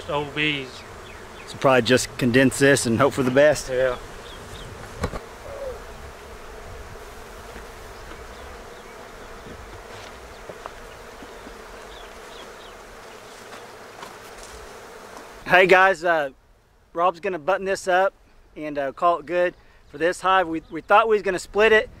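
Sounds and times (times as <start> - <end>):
honey bees buzzing: 0.0 - 16.9
knock on hive: 3.0 - 3.7, 4.5 - 5.3, 7.4 - 8.5, 9.4 - 15.3.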